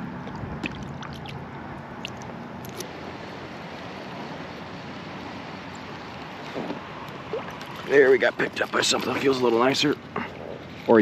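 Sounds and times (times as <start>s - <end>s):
distant road traffic rumble: 0.0s - 11.0s
water drips: 7.0s - 8.0s.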